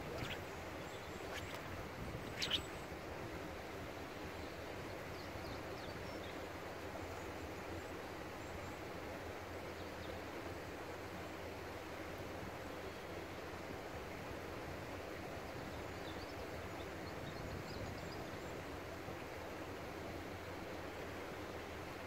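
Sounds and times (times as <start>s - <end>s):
short sharp swish: 0.0s - 0.4s, 1.1s - 2.8s
faint high chirps: 0.0s - 2.9s
outdoor background hiss: 0.0s - 22.0s.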